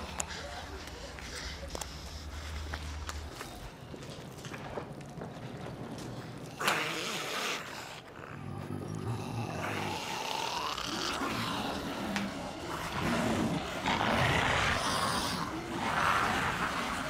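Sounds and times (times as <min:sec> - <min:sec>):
zombies snarling and growling: 0:06.5 - 0:17.0.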